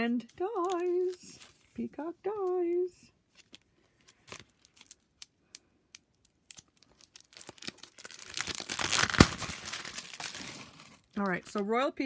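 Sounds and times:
plastic packaging crinkling and tearing: 3.3 - 11.7
plastic packaging clicks: 3.4 - 11.6.

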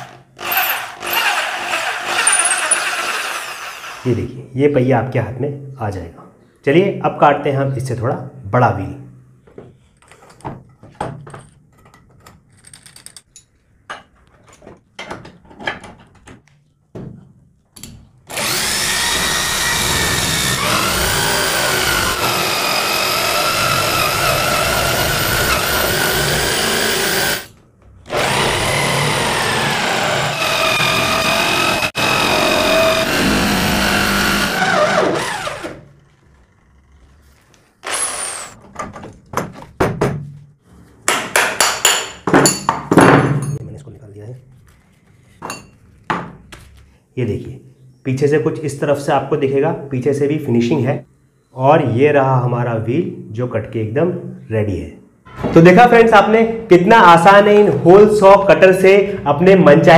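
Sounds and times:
electric drill motor whine: 18.3 - 27.5, 28.1 - 35.8, 37.8 - 38.6.

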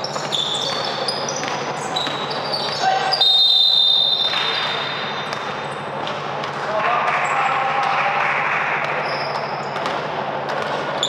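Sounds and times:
basketball bouncing: 0.0 - 6.6, 8.8 - 11.0
sneakers squeaking: 0.0 - 6.6, 8.8 - 11.0
referee whistle blast: 3.0 - 5.0.

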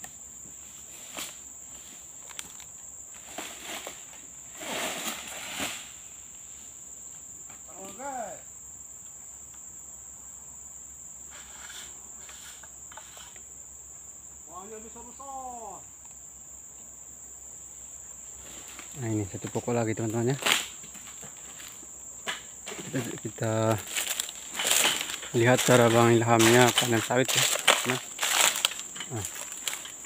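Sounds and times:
high-pitched insect drone: 9.9 - 30.0
dry fronds crackling rustle: 18.3 - 30.0.

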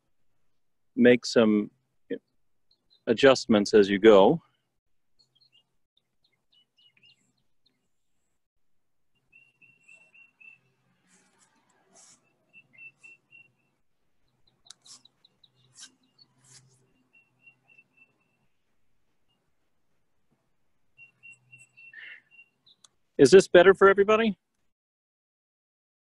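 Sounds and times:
faint birdsong chirps: 1.6 - 8.4, 9.1 - 23.4
pencil scratching on paper: 11.0 - 12.4, 14.7 - 16.9.

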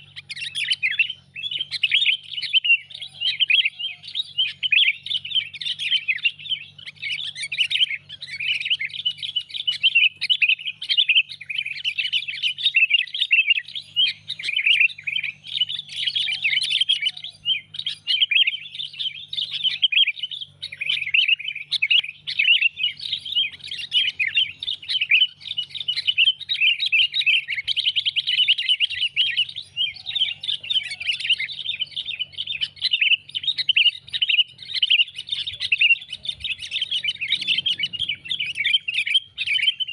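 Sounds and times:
birds chattering and chirping: 0.0 - 39.9.

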